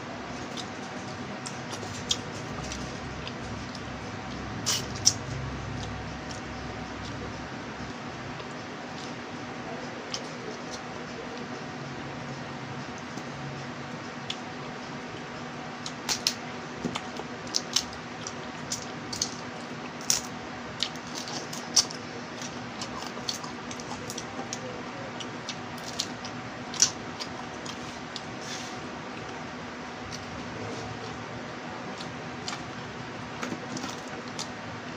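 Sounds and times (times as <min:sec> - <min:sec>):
faint hiss and hum: 0:00.0 - 0:34.9
wet chewing sounds: 0:14.2 - 0:28.4.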